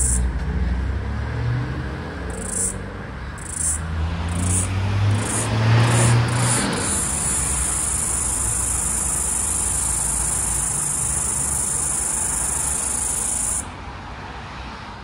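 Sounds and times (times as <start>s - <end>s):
cicada buzzing: 0.0s - 0.3s, 2.3s - 2.8s, 3.4s - 13.7s.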